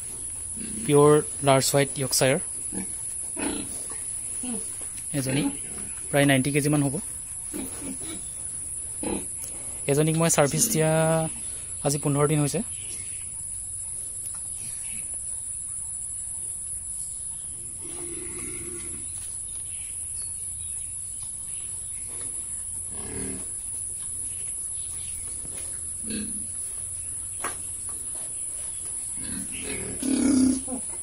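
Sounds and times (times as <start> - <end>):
pigs grunting: 2.6 - 6.0, 7.5 - 8.4, 9.0 - 9.9, 17.6 - 19.1, 22.1 - 23.6, 26.0 - 26.6, 29.2 - 31.0.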